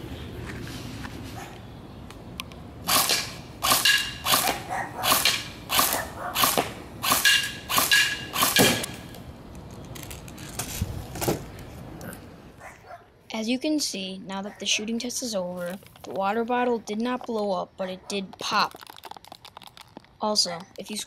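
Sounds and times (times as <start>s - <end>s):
airsoft gun shots: 2.9s - 9.1s.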